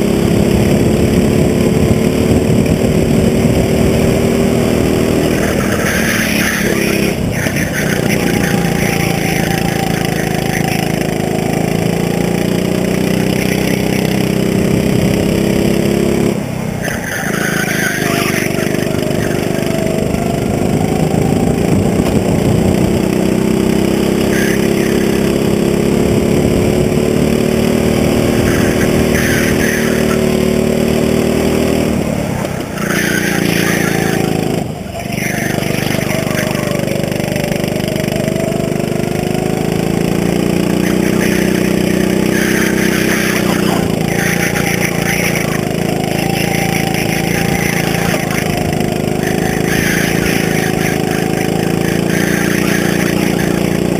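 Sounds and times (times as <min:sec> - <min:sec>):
go-kart engine revving: 0:00.0 - 0:53.9.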